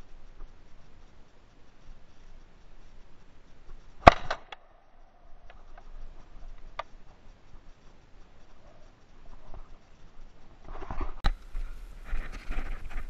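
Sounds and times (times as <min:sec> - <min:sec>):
faint clicks: 0:00.0 - 0:11.6
shotgun shot: 0:04.0 - 0:04.6.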